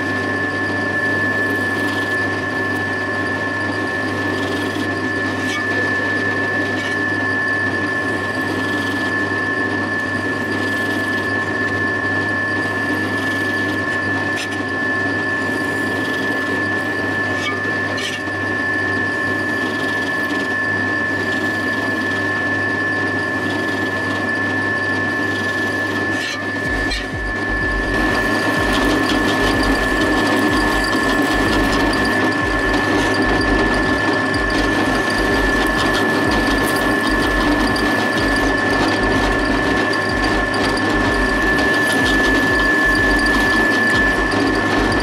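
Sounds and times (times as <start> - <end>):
drilling machine whining: 0.0 - 45.0
low hum: 26.6 - 45.0.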